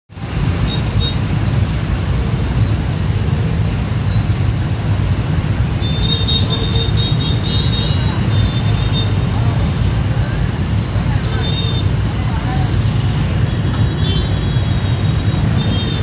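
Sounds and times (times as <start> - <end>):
dense motorbike traffic rumble: 0.1 - 16.0.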